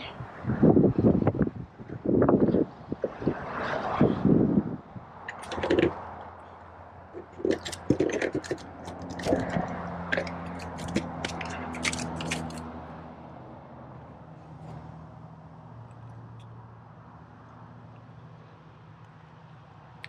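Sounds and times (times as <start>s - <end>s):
fish handled on plastic board: 7.2s - 12.6s.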